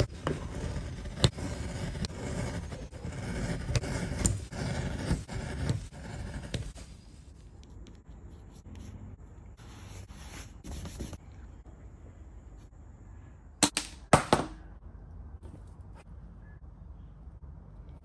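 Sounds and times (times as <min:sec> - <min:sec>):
knife scraping leather: 0:00.0 - 0:06.9.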